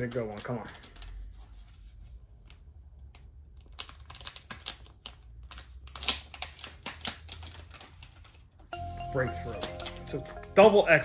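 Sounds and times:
stiff plastic packaging crackling: 3.5 - 8.7.

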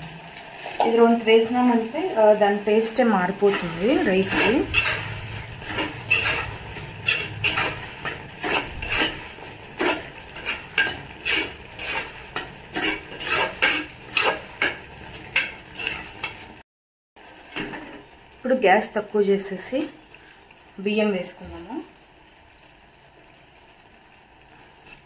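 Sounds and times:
metal spoon scraping a pot: 3.4 - 16.5.

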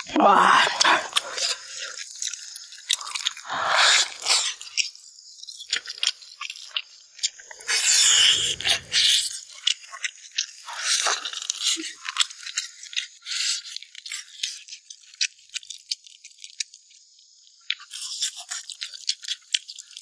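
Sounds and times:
wet chewing smacks and crunches: 0.8 - 4.9.

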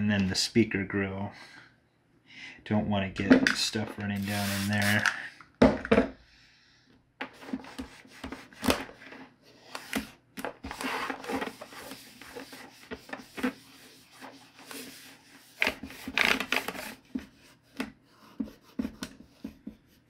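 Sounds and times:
cloth rubbing plastic: 4.0 - 5.0, 10.6 - 17.1.

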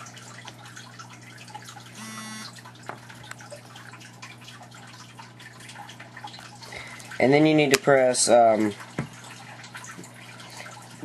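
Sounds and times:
phone vibration buzz: 2.0 - 2.6.

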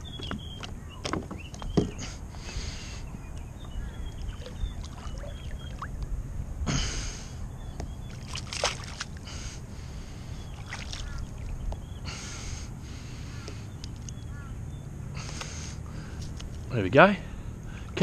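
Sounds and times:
shallow water splashing: 3.8 - 6.0, 8.1 - 9.3, 10.4 - 11.7.

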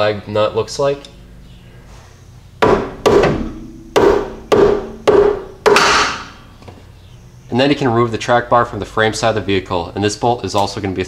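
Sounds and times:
hammer blows on metal: 2.6 - 6.6.

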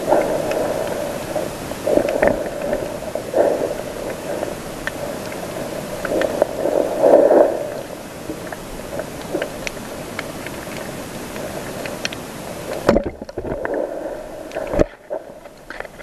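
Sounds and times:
steady underwater hiss: 0.0 - 16.0
underwater water surges and bubbles: 0.0 - 16.0.

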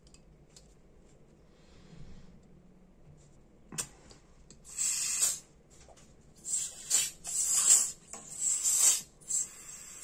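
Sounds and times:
gas hissing from refill can: 4.7 - 5.4, 6.4 - 10.0.

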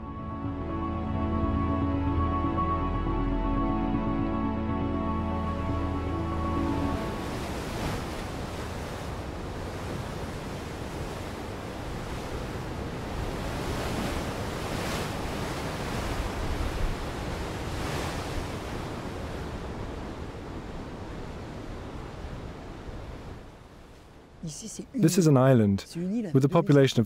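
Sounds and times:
waves crashing: 5.2 - 25.4
churning surf: 5.6 - 23.5.

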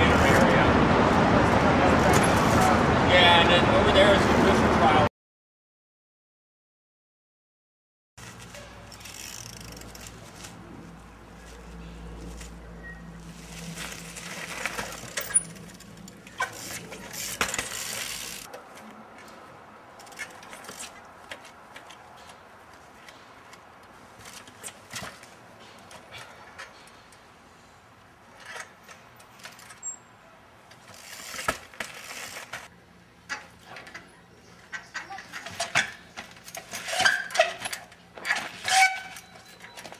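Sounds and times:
bicycle landing knocks and clinks: 13.8 - 18.6.

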